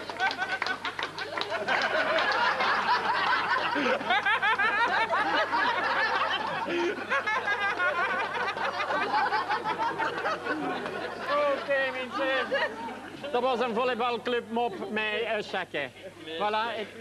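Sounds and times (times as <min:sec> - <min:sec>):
crowd laughing hard: 0:00.0 - 0:13.6.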